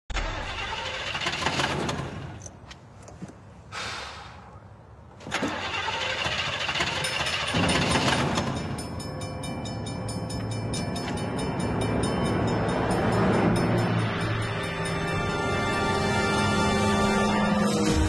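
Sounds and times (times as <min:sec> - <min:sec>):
car engine cranking: 0:00.1 - 0:02.6, 0:05.2 - 0:15.8
fast repeating warning bell: 0:06.7 - 0:17.6.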